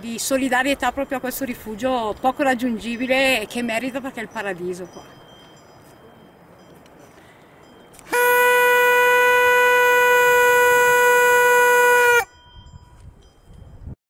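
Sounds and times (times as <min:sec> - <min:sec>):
brass horn long note: 0:08.1 - 0:12.3.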